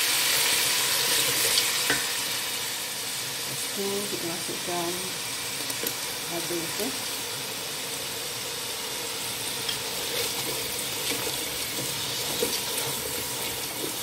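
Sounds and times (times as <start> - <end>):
spices sizzling in hot oil: 0.0 - 14.0
spatula scraping a pot: 9.7 - 14.0.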